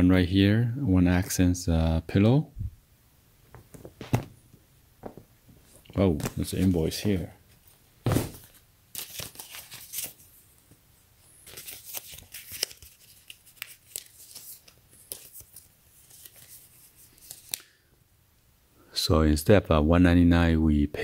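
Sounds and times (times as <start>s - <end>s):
paper rustling and crinkling: 5.6s - 10.4s, 11.4s - 17.6s.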